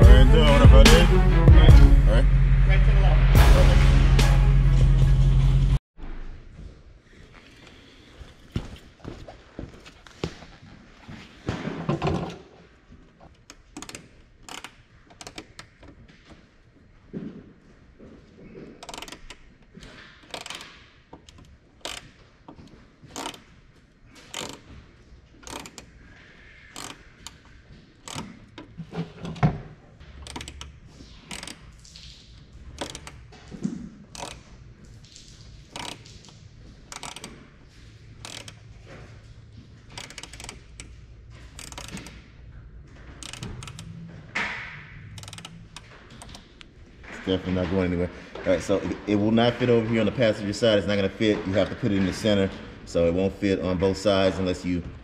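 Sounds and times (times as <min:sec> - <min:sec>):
hand tools clicking: 0:25.4 - 0:25.9, 0:35.7 - 0:36.1, 0:36.9 - 0:37.4, 0:38.2 - 0:38.6, 0:41.5 - 0:42.2.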